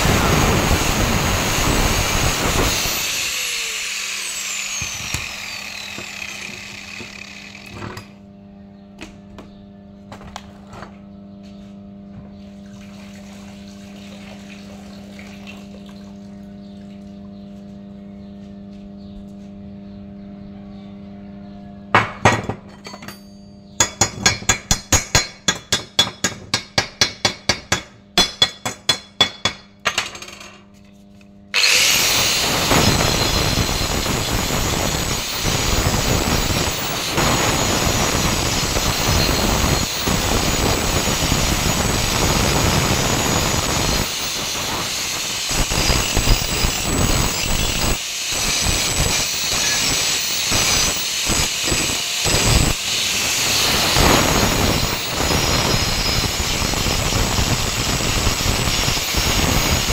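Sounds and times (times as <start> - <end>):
angle grinder grinding steel: 0.0 - 8.2, 31.5 - 59.9
metal chipping strikes: 1.6 - 8.2, 21.9 - 30.3
low mains hum: 4.9 - 24.5.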